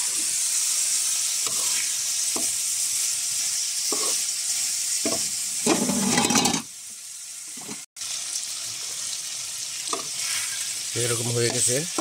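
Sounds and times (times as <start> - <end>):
meat and onions sizzling: 0.0 - 12.0
metal spatula scraping: 1.4 - 2.5, 3.9 - 4.3, 5.0 - 6.7, 9.9 - 12.0.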